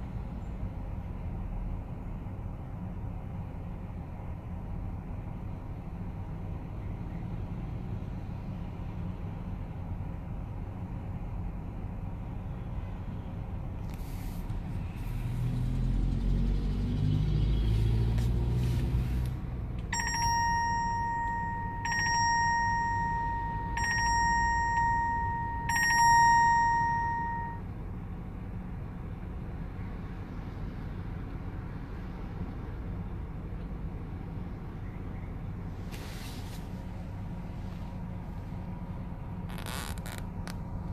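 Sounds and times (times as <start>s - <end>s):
car rumble: 0.0s - 40.9s
ringing chime: 20.0s - 27.6s.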